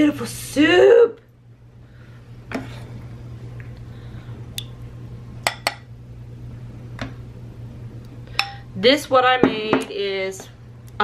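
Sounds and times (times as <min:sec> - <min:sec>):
steady low hum: 0:00.0 - 0:11.0.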